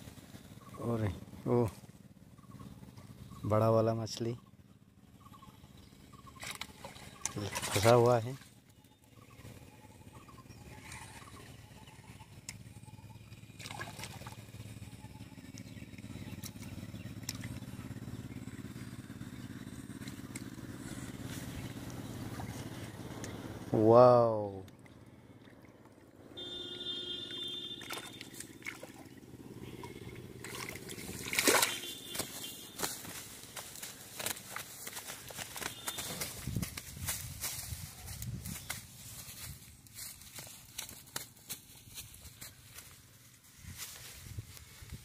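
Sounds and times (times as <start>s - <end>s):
steady low hum: 0.0s - 45.0s
fish thrashing and splashing: 6.3s - 8.1s, 13.5s - 14.5s, 27.8s - 36.4s.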